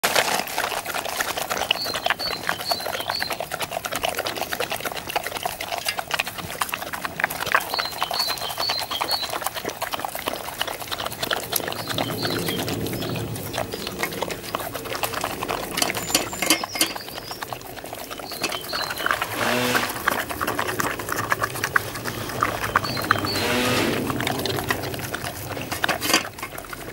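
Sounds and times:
dogs chomping and licking: 0.0s - 26.9s
muzzles clinking metal bowls: 15.6s - 17.6s, 18.2s - 20.3s, 25.5s - 26.9s.

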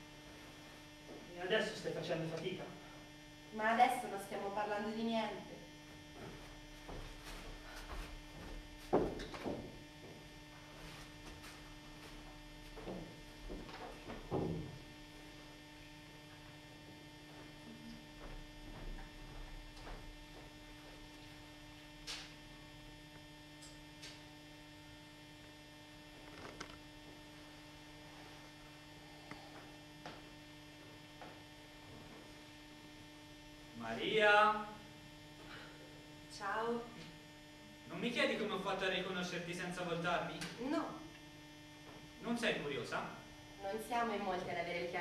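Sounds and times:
electrical mains hum: 0.0s - 45.0s.

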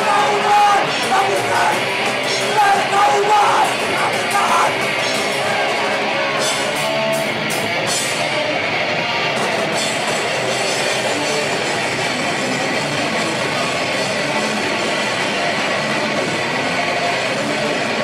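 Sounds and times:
shouted vocals: 0.0s - 6.1s
distorted electric guitar: 0.0s - 18.0s
drums: 0.0s - 18.0s.

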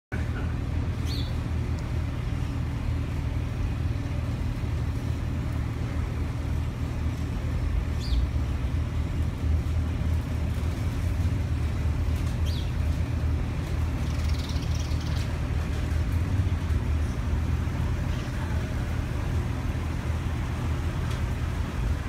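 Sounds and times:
traffic rumble: 0.1s - 22.0s
bird chirp: 1.0s - 1.4s, 12.4s - 12.8s, 14.0s - 15.3s.

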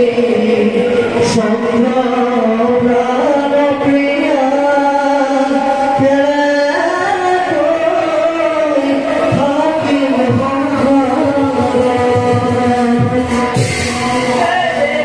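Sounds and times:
person singing devotional song: 0.0s - 15.0s
soft drum strokes: 9.2s - 15.0s.

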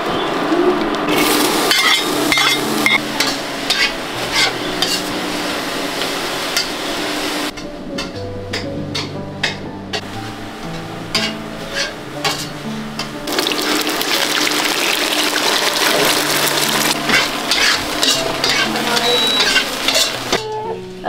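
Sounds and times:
food sizzling in hot oil: 1.1s - 7.5s, 11.1s - 20.4s
soft background music: 7.5s - 21.0s.

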